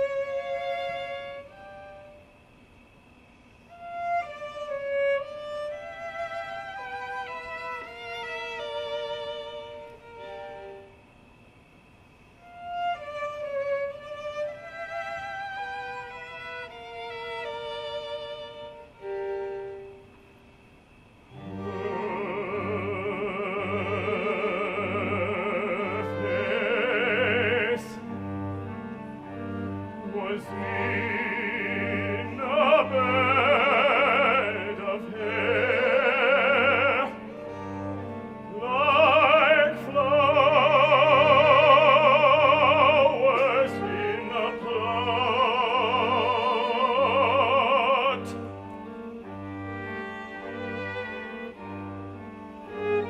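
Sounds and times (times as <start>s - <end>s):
instrumental accompaniment: 21.3s - 53.0s
operatic singing: 21.3s - 53.0s.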